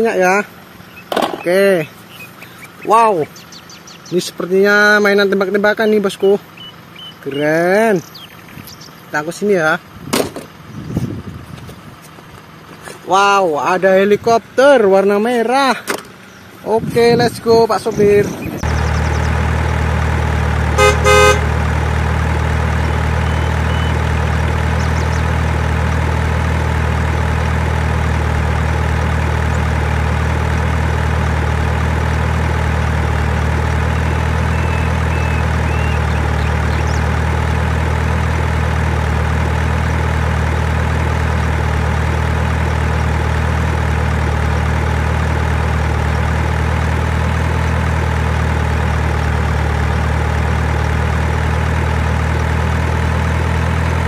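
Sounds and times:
truck engine idling: 0.0s - 54.0s
truck horn toots: 20.6s - 22.0s.

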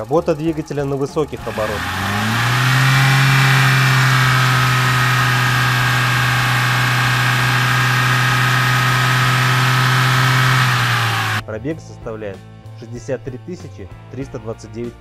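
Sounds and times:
car engine at high revs: 1.4s - 11.4s.

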